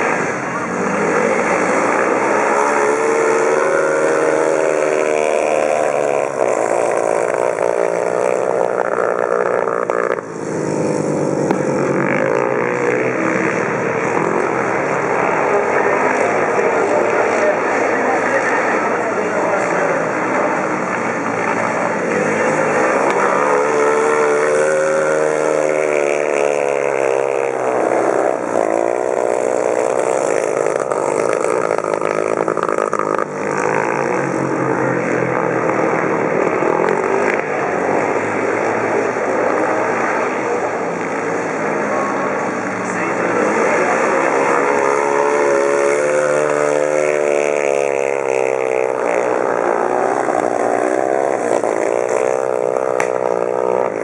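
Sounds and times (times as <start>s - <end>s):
motorcycles racing: 0.0s - 54.0s.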